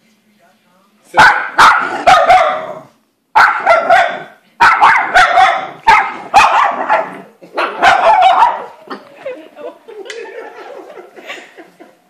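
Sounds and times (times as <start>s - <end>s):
small dog yapping: 1.2s - 2.8s, 3.4s - 8.7s.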